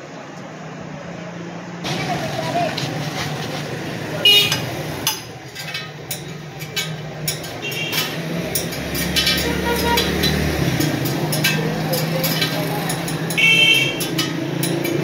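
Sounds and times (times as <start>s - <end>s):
street traffic hum: 0.0s - 15.0s
metal spokes clicking and clinking: 4.4s - 15.0s.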